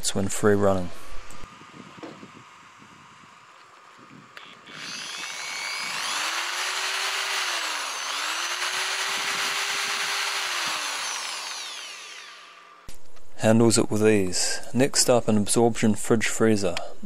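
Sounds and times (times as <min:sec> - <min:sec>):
electric drill free-running: 0:04.3 - 0:12.9.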